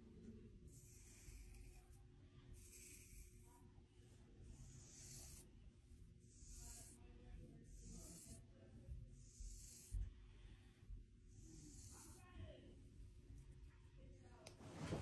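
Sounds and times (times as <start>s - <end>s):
marker scratching on skin: 0.6s - 10.1s, 11.3s - 13.7s.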